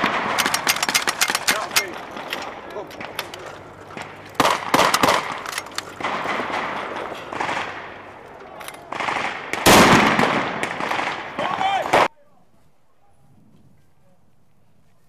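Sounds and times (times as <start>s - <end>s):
machine gun firing bursts: 0.0s - 8.1s, 8.9s - 12.1s.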